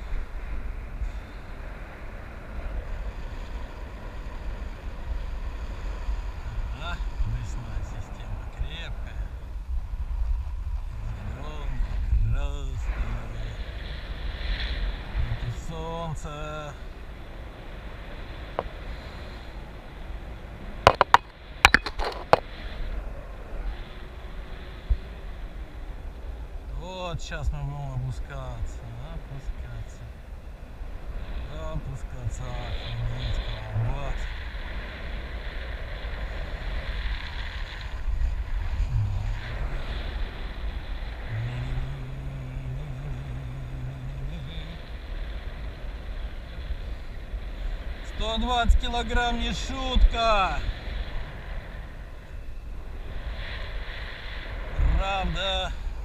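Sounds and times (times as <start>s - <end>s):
steady low hum: 0.0s - 56.0s
wind rushing over microphone: 0.0s - 56.0s
sharp clicks or knocks: 20.9s - 22.4s.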